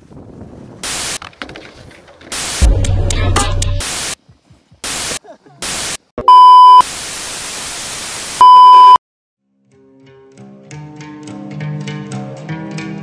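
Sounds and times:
white noise static hiss: 4.8 - 8.9
steady high test-tone beep: 6.3 - 6.8, 8.4 - 9.0.

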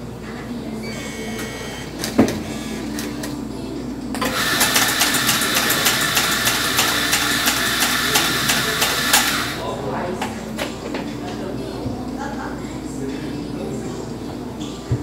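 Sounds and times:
electric coffee grinder running: 4.2 - 9.6.

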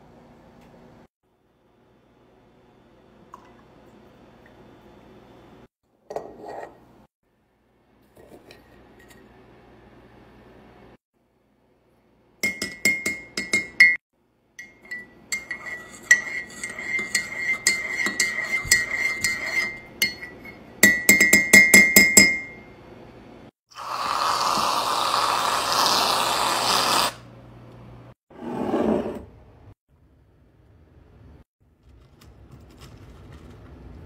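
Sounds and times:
spoon clinking in ceramic mug: 12.4 - 14.0, 14.6 - 22.6
aerosol whipped cream spraying: 23.8 - 27.2.

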